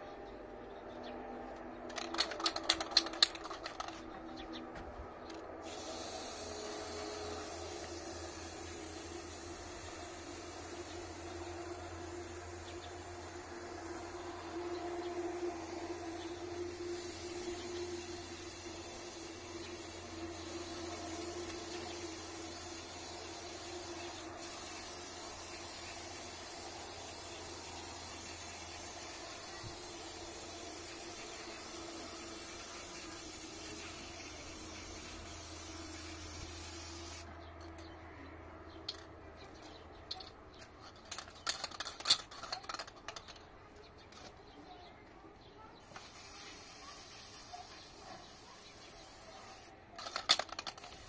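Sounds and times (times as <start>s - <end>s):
sharp clicks and rattles: 1.8s - 4.4s, 38.7s - 44.5s, 50.0s - 51.0s
spray paint can hissing: 1.9s - 4.1s, 5.6s - 37.3s, 45.8s - 51.0s.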